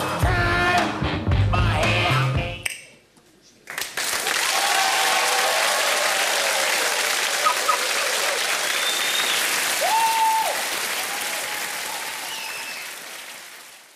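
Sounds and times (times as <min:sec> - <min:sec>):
audience applauding: 0:03.7 - 0:13.9
whistle rising and falling: 0:08.7 - 0:10.2.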